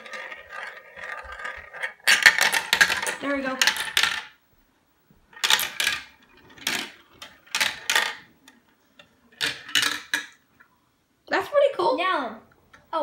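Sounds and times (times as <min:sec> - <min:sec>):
marble rattling down plastic track: 0:00.0 - 0:04.4, 0:05.4 - 0:10.4.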